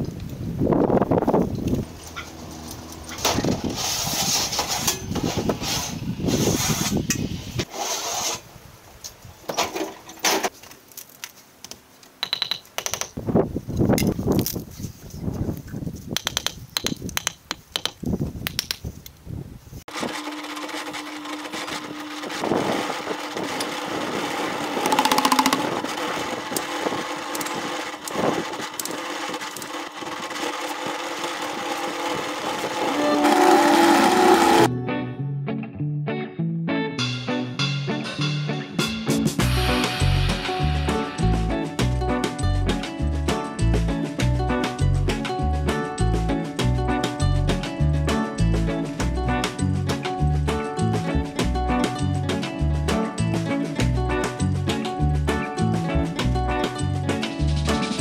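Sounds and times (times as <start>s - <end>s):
concrete mixer humming: 1.6s - 4.4s, 19.9s - 34.7s
building work knocks and taps: 11.7s - 13.2s, 16.1s - 18.8s.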